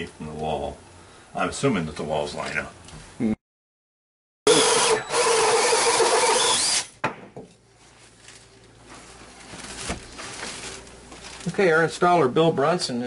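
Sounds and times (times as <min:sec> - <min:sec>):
cordless drill whining: 0:04.5 - 0:06.9
faint handling sounds: 0:07.6 - 0:12.0.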